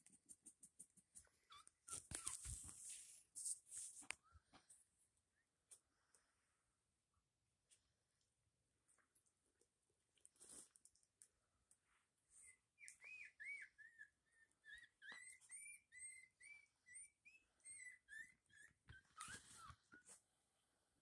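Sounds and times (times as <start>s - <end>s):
puppies squeaking: 1.2s - 2.6s, 12.4s - 20.2s.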